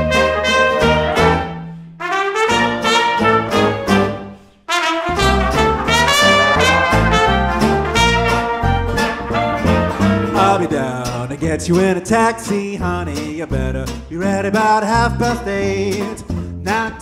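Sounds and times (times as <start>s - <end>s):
traditional jazz band playing: 0.0s - 10.8s.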